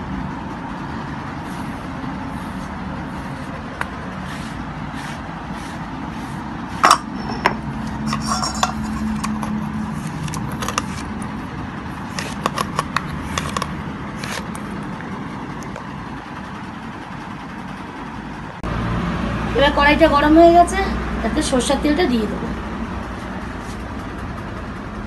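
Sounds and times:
low background hum: 0.0 - 25.0
hand scraping paste off stone slab: 1.5 - 7.0, 12.1 - 14.6
steel bowl clinking: 6.8 - 11.0.

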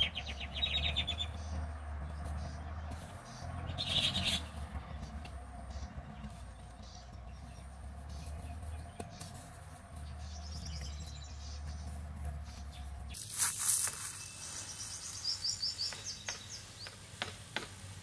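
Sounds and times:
bird chirping: 0.0 - 17.4
seed trickling: 13.1 - 17.2
plastic bag rustling: 13.2 - 15.3.

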